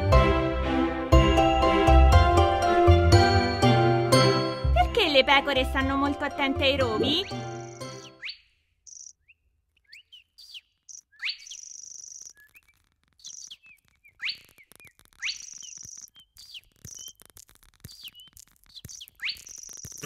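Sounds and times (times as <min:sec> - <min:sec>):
birds chirping: 0:05.0 - 0:20.0
high bird trills: 0:07.2 - 0:17.2.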